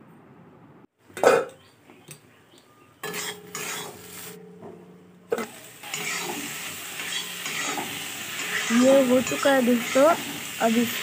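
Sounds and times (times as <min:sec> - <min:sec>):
frying sizzle: 0:03.0 - 0:04.4, 0:05.3 - 0:11.0
spatula scraping iron pan: 0:03.0 - 0:04.4, 0:05.3 - 0:10.6.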